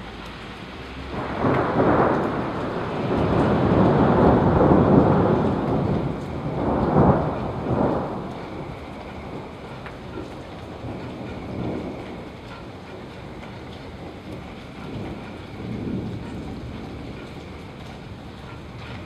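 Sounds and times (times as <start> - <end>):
steady rain: 0.0 - 19.0
thunder rolling: 1.0 - 19.0.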